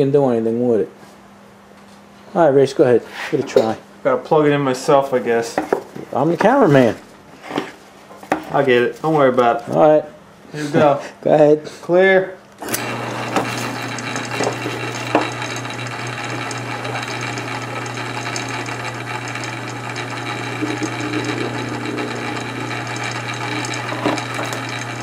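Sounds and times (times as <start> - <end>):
drill boring into metal: 12.6 - 25.0
lathe motor hum: 12.6 - 25.0.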